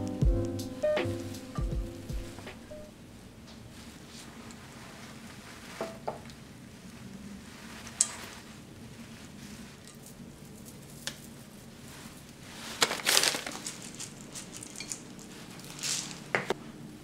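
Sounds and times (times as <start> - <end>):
crinkling rustle: 3.2 - 16.6.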